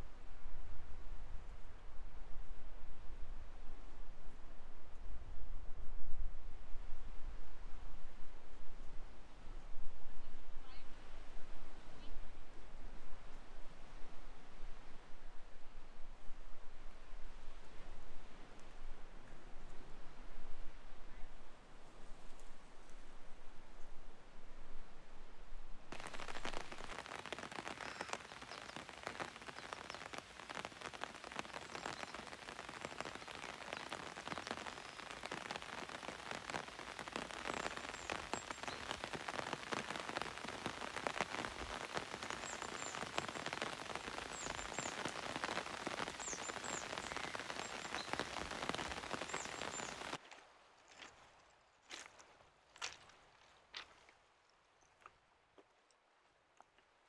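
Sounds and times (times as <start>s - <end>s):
rain falling: 25.9s - 51.0s.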